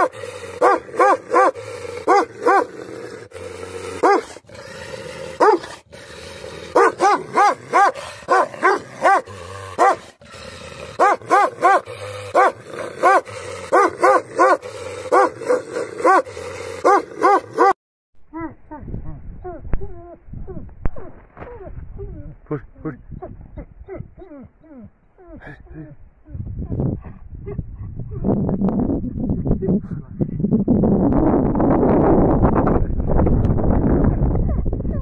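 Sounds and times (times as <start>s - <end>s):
dog barking: 0.0s - 2.7s, 4.0s - 4.3s, 5.4s - 5.7s, 6.7s - 10.1s, 11.0s - 17.8s
dog growling: 0.0s - 17.8s.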